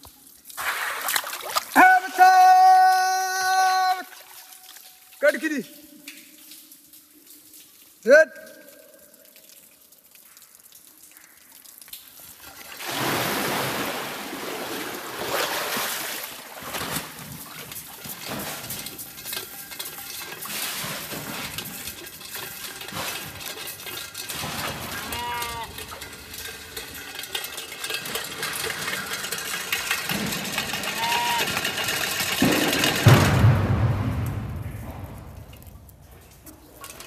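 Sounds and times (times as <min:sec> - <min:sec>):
water gushing and splashing: 0:00.0 - 0:02.0, 0:12.0 - 0:37.0
animal bleat: 0:24.9 - 0:25.8, 0:30.8 - 0:31.6.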